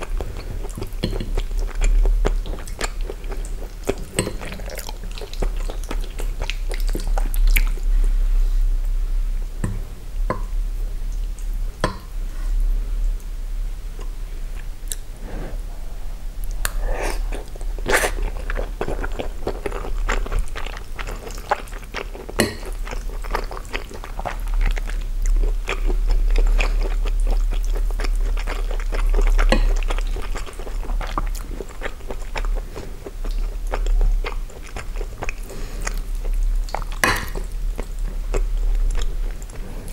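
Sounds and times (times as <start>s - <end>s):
close chewing mouth noises: 0.0s - 7.9s, 16.4s - 39.9s
steady low hum: 0.0s - 39.9s.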